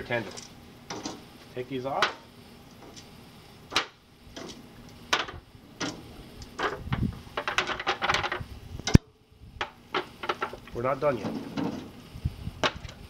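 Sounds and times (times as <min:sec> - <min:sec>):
metal tongs clacking on grill and pan: 0:00.1 - 0:01.2, 0:01.9 - 0:03.1.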